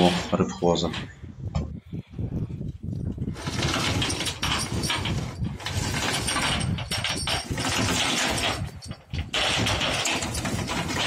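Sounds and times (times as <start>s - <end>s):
chains clanking against metal: 3.0s - 11.0s.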